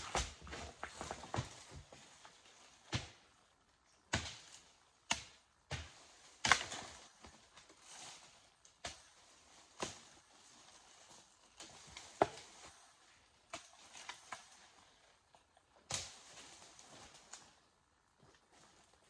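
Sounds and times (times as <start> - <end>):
machete chopping brush: 4.1 - 7.0.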